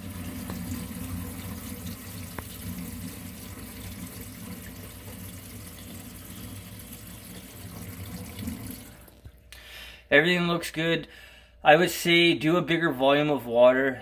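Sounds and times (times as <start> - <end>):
water draining from a sink: 0.0 - 9.3.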